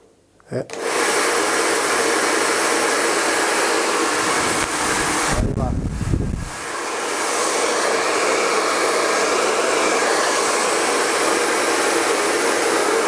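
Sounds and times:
hair dryer blowing: 0.7 - 13.0
air buffeting microphone: 4.2 - 6.6.

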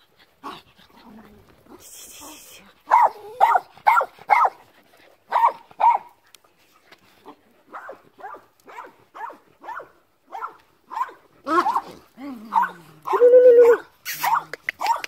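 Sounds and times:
dogs yapping: 2.9 - 4.6, 5.3 - 6.2.

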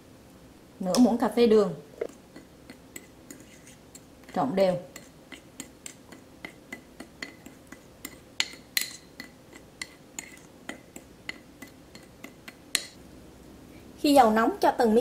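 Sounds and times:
metal spoon stirring in ceramic bowl: 2.0 - 13.0.

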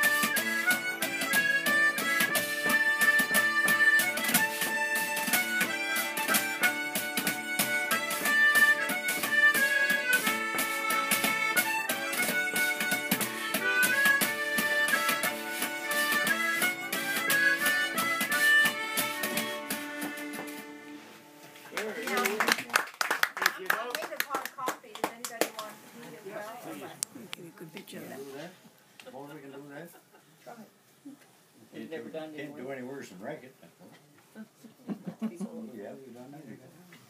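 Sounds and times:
harmonica playing a lively melody: 0.0 - 21.2.

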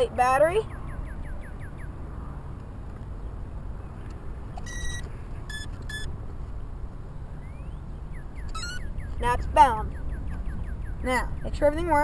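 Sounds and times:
electronic beeps: 4.6 - 6.1, 8.4 - 9.2.

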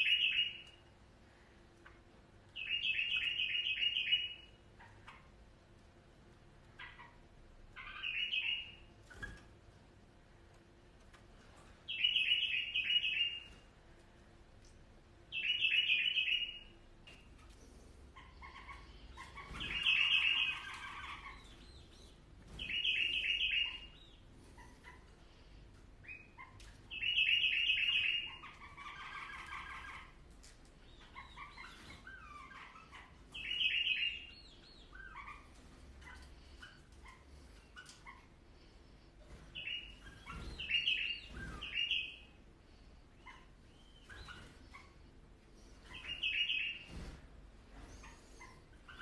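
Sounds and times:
bird singing bright phrases: 0.0 - 0.8, 2.5 - 4.6, 7.7 - 9.4, 11.9 - 13.6, 15.3 - 17.3, 18.2 - 24.7, 26.0 - 30.2, 30.8 - 37.2, 39.5 - 42.4, 45.6 - 46.9
soft bird calls: 0.0 - 5.4, 6.5 - 9.6, 11.4 - 49.0.

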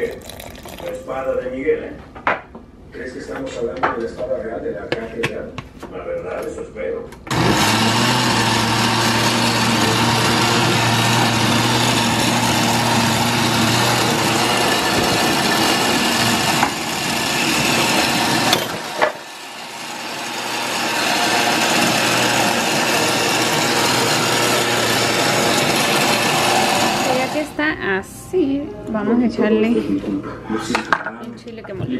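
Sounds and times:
blender motor running: 7.3 - 27.6.

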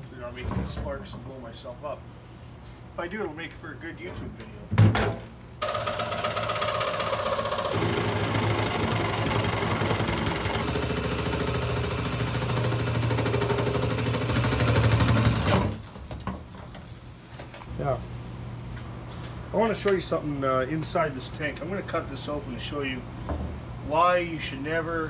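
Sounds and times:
reciprocating saw cutting metal: 5.6 - 15.8.

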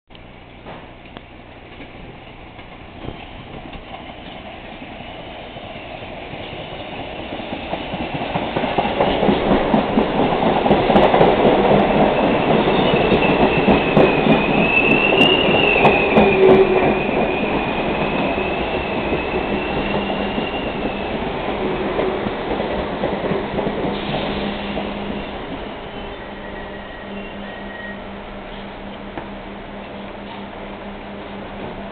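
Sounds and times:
train wheels clattering: 6.3 - 27.8
high wavering squeal: 12.1 - 21.1, 24.1 - 28.7.

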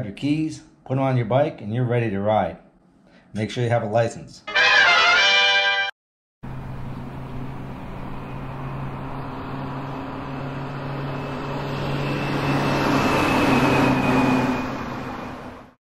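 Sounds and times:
low traffic hum: 6.4 - 15.7.

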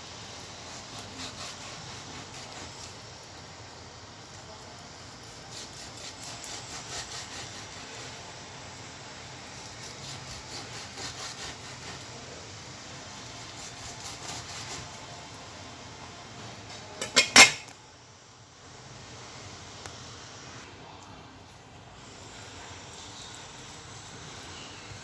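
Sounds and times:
utensil pricking pork skin: 0.2 - 15.5.

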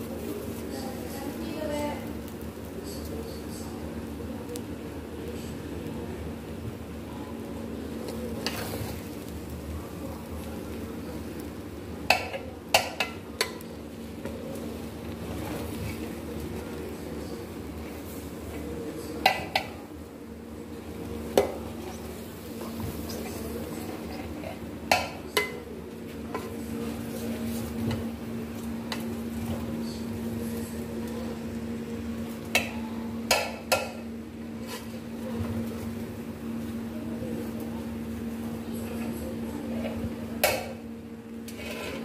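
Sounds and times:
steady low hum: 0.0 - 42.0
metal spoon scraping rice in pot: 41.5 - 42.0.

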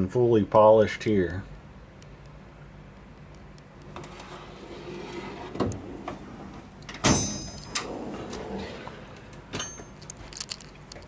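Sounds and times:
metal drawers sliding: 3.9 - 9.9
metallic clank ringing: 7.0 - 7.8.

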